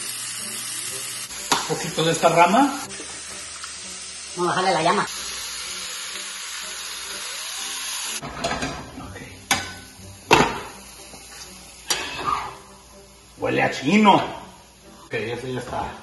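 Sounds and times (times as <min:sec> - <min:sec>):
vegetables sizzling in a frying pan: 0:00.0 - 0:16.0.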